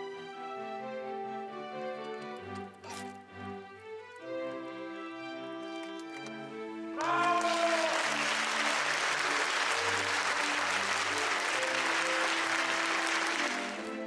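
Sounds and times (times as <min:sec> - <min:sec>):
soft background music: 0:00.0 - 0:14.0
applause: 0:07.0 - 0:14.0.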